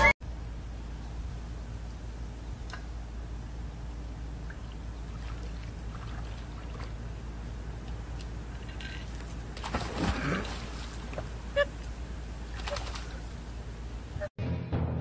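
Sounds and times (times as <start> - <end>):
steady low rumble: 0.0 - 15.0
pool water splashing: 4.3 - 13.9.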